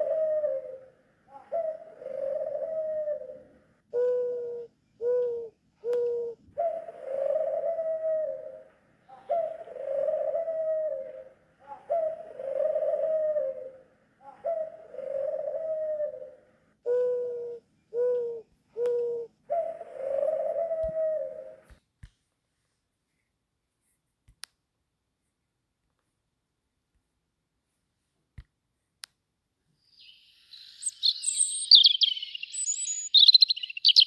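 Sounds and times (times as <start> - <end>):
dove cooing: 0.0 - 21.7, 30.0 - 34.0.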